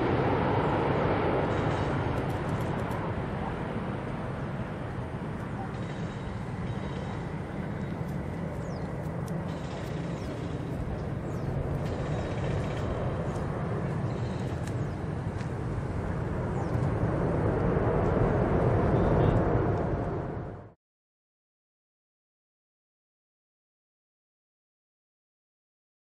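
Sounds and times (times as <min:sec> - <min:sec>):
jet engines roaring: 0:00.0 - 0:20.8.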